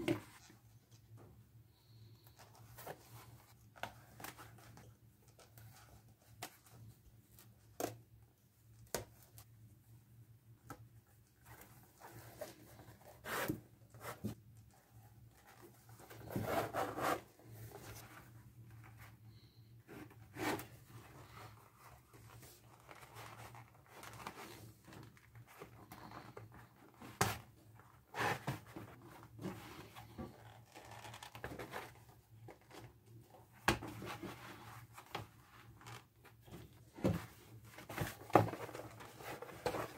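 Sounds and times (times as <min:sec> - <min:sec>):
leather rustling and rubbing: 0:30.4 - 0:31.3
laces pulled through leather: 0:30.4 - 0:31.6.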